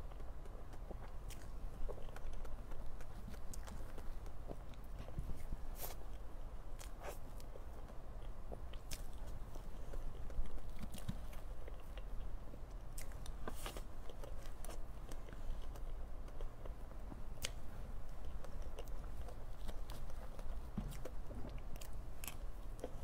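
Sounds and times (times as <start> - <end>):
wet chewing and mouth sounds: 0.0 - 23.0.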